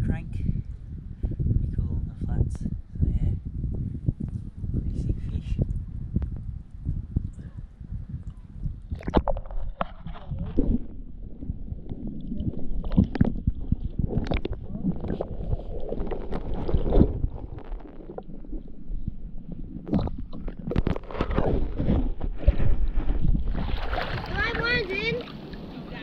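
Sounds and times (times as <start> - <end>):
muffled water sloshing and gurgling: 5.8 - 26.0.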